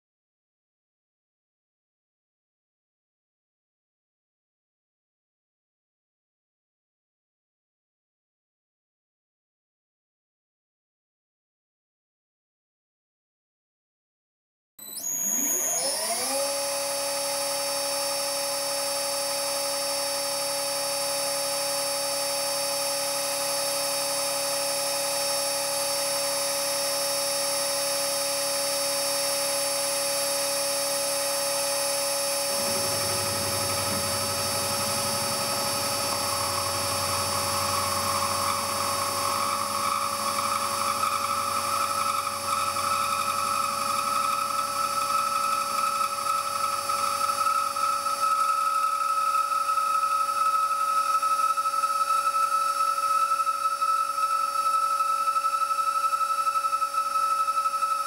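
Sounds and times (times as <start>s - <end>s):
milling machine whine: 14.8s - 58.0s
low rumble: 32.6s - 39.0s.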